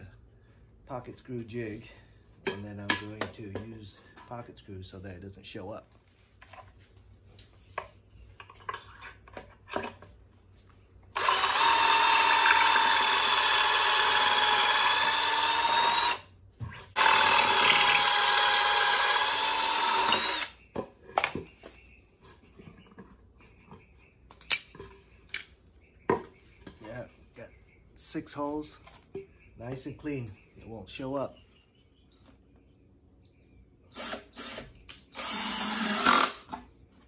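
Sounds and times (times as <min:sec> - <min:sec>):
cordless drill whining: 0:11.1 - 0:16.2, 0:17.0 - 0:20.6, 0:33.9 - 0:36.5.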